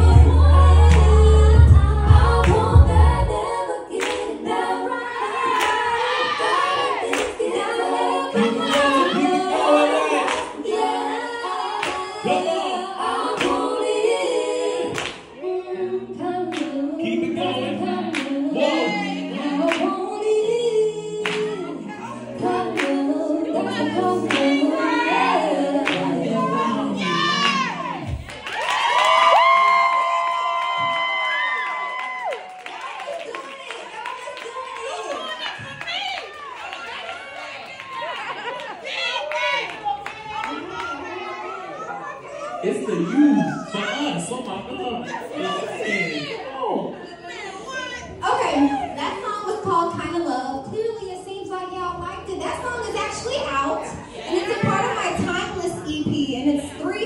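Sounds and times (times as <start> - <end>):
heavy bass accompaniment: 0.0 - 3.4
woman singing into microphone: 0.0 - 28.2.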